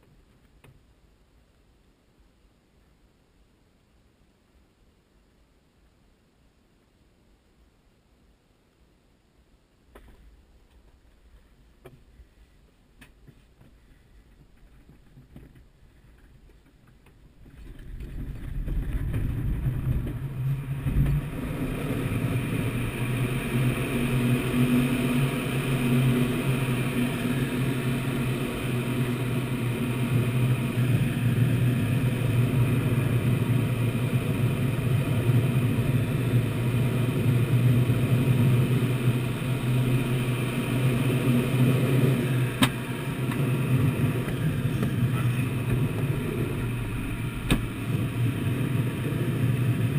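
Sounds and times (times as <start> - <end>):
low hum: 0.0 - 49.9
airflow rushing in cockpit: 17.4 - 49.9.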